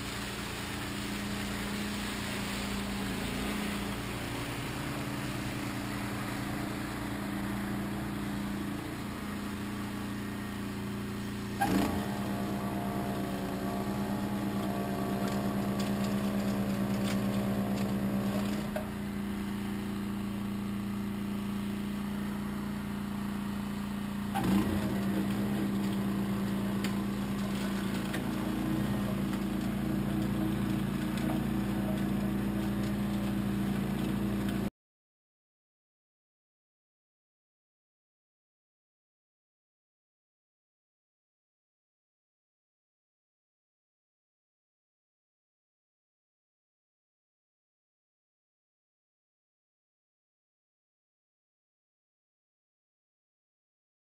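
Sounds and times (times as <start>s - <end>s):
motor humming: 0.1s - 34.7s.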